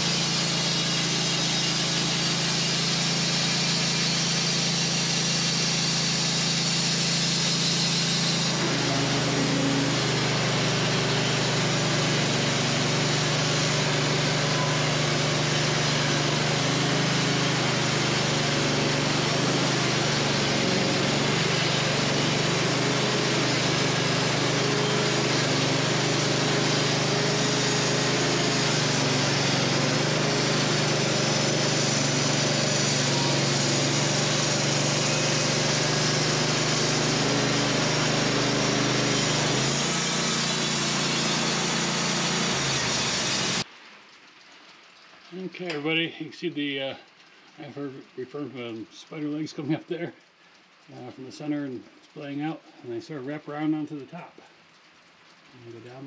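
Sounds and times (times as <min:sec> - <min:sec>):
band sawmill sawing log: 0:00.0 - 0:43.7.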